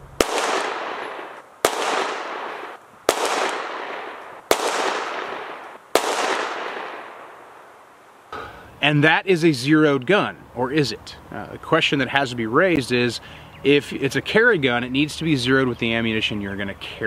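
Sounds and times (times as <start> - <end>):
handgun shots with echo: 0.2 - 7.2.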